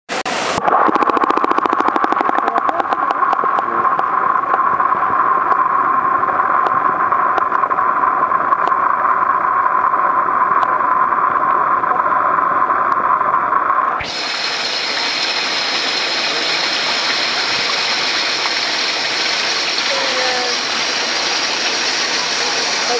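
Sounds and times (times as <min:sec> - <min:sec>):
pool water hiss: 0:00.1 - 0:22.9
muffled underwater rushing hiss: 0:14.0 - 0:22.9.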